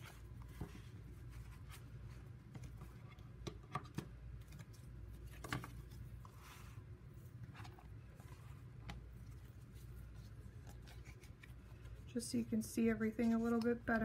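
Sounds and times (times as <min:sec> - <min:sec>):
low steady hum: 0:00.0 - 0:14.0
paper rustling: 0:07.4 - 0:12.2.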